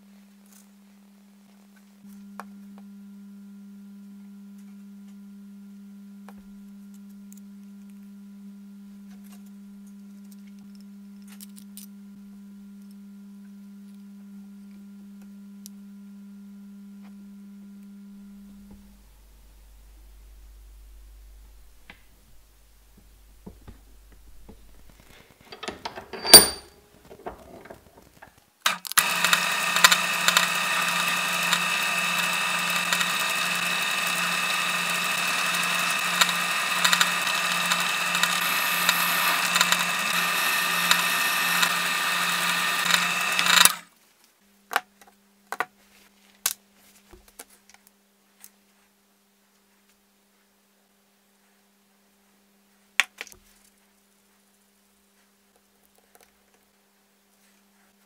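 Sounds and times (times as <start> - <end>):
drill press boring: 23.5 - 43.9.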